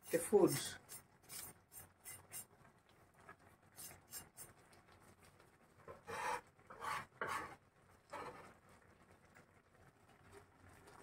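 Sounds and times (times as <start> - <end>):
gloved hand rubbing and scraping: 0.8 - 2.5, 6.0 - 7.6.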